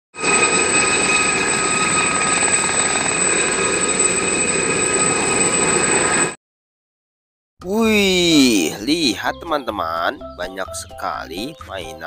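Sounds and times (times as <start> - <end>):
helicopter hovering: 0.2 - 6.4
high-pitched turbine whine: 0.2 - 6.4.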